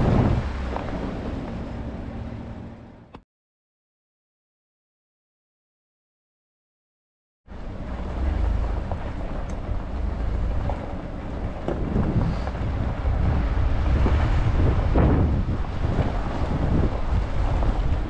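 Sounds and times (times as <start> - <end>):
heavy wind buffeting microphone: 0.0 - 3.0, 7.5 - 18.0
low rumble: 0.0 - 3.2, 7.5 - 18.0.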